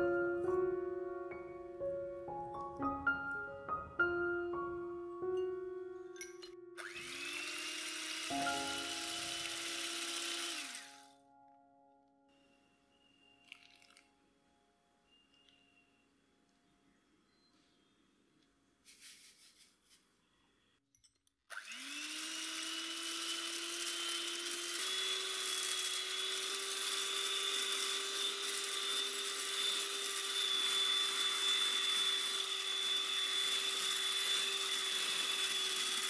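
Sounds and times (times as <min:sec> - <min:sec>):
electric mixer whining: 0:06.8 - 0:11.2, 0:21.5 - 0:36.0.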